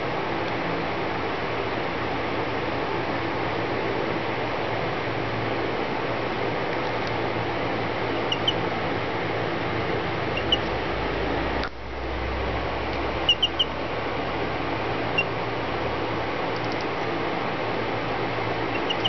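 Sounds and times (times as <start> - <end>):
steady background hiss: 0.0 - 19.0
baby chick peeping: 8.1 - 8.8, 10.2 - 10.8, 12.9 - 13.8, 15.1 - 15.4, 18.6 - 19.0.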